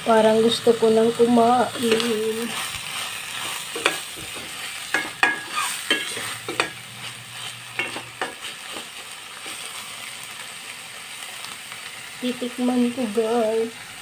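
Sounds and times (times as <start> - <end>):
shrimp sizzling in a pan: 0.0 - 14.0
metal spoon scraping a pan: 1.8 - 9.8.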